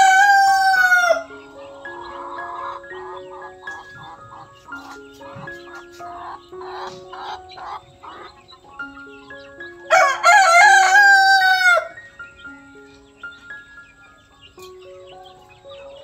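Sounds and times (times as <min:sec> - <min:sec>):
rooster crowing: 0:00.0 - 0:01.4, 0:09.9 - 0:12.0
soft melodic background music: 0:00.0 - 0:16.0.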